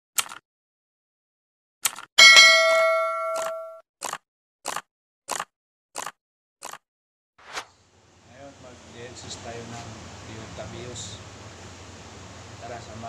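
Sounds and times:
bell ding: 0:02.2 - 0:03.8
mouse click: 0:03.4 - 0:03.6.

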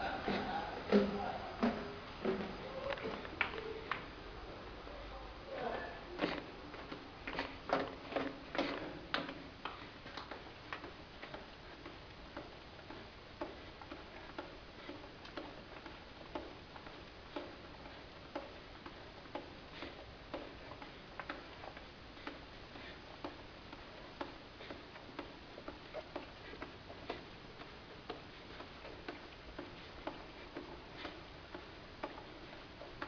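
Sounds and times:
footsteps on hard floor: 0:00.0 - 0:03.4.

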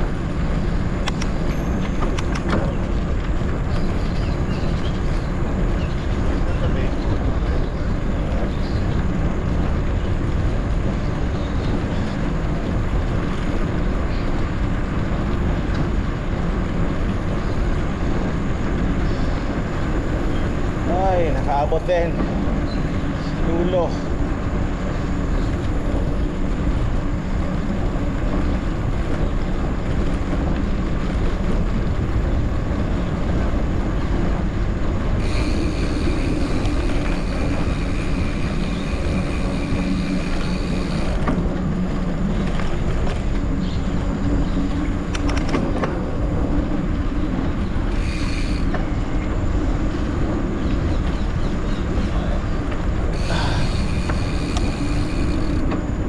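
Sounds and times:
wind rush on microphone: 0:00.0 - 0:56.0
high ringing tone: 0:35.2 - 0:41.1.

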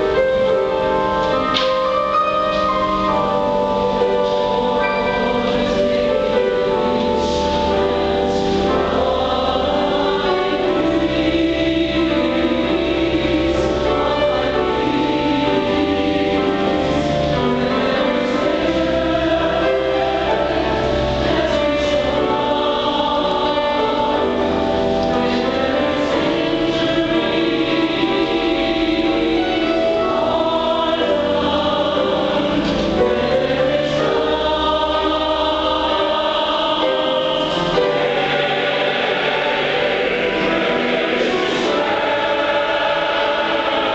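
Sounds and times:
mixed choir singing: 0:00.0 - 0:43.9
piano accompaniment: 0:00.0 - 0:43.9.

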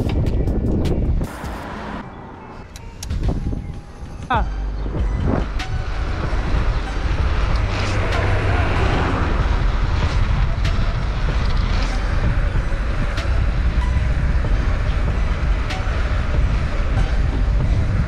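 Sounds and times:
wind on camera microphone: 0:00.0 - 0:01.4
bike tyres rolling on asphalt: 0:05.5 - 0:18.0.

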